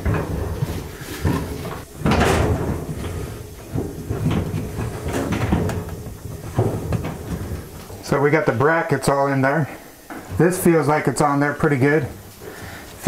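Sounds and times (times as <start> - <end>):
sheet metal knocks and clunks: 0.0 - 8.4.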